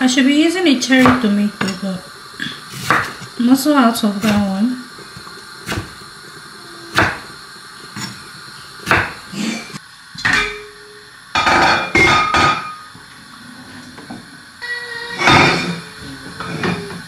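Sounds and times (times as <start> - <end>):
knife chopping on wooden board: 2.8 - 3.2, 6.9 - 7.2, 8.9 - 9.2.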